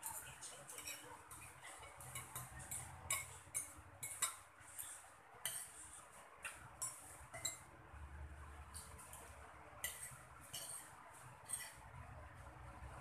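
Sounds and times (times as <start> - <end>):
cutlery clinking on ceramic plate: 0.7 - 5.8, 6.4 - 7.7, 8.8 - 11.8.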